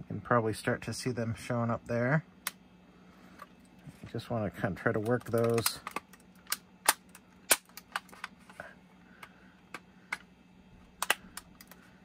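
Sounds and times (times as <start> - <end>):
plastic clicks and snaps: 5.0 - 8.4, 11.0 - 11.8.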